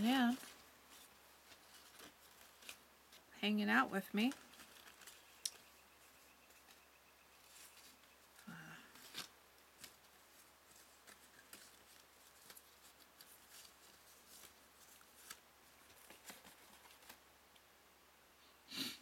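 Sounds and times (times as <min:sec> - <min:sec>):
paper rustling and clicking: 0:00.3 - 0:03.2, 0:04.2 - 0:05.8, 0:07.4 - 0:17.2.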